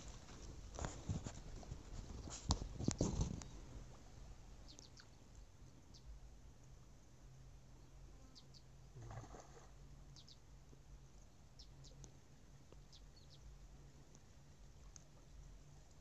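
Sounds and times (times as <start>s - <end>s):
soft rustle: 0.0s - 4.2s.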